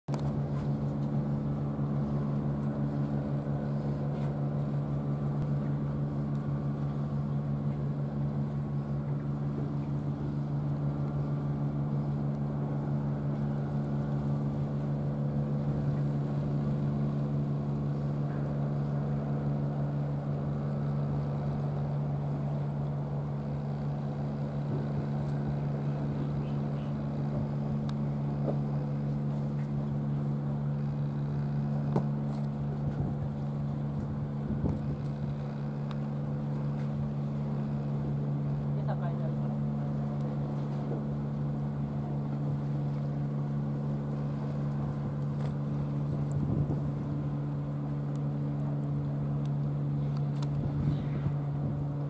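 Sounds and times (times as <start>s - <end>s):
steady engine drone: 0.1s - 52.0s.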